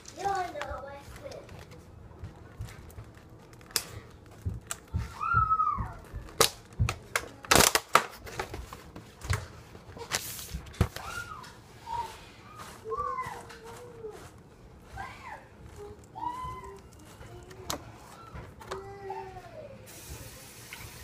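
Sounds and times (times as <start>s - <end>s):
rustling: 8.2s - 19.0s.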